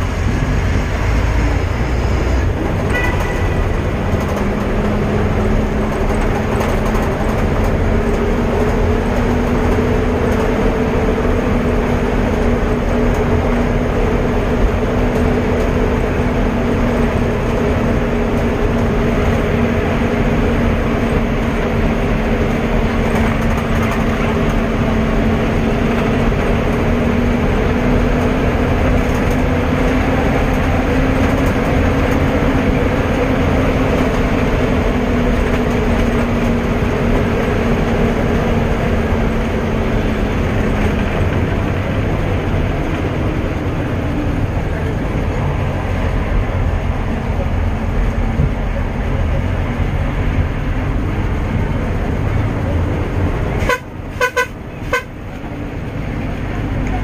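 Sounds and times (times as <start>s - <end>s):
road and wind noise: 0.0s - 57.0s
vehicle engine drone: 0.0s - 57.0s.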